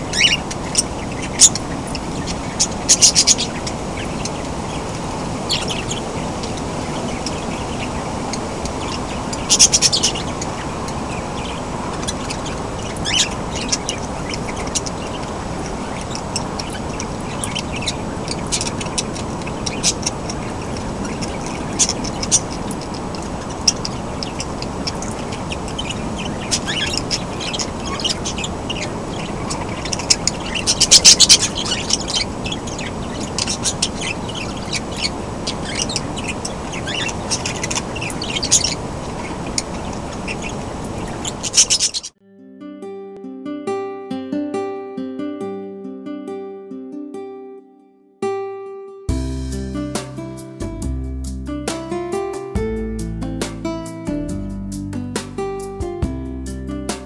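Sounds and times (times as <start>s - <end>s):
parrots chirping and chattering: 0.0s - 42.2s
steady background noise: 0.0s - 42.2s.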